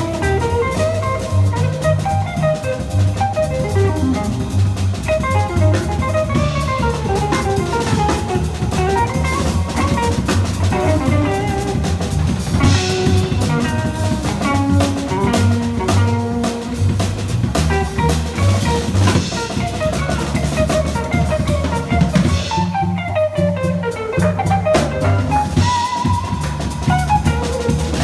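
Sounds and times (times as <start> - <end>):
drum kit with cymbals: 0.0 - 28.0
upright bass: 0.0 - 28.0.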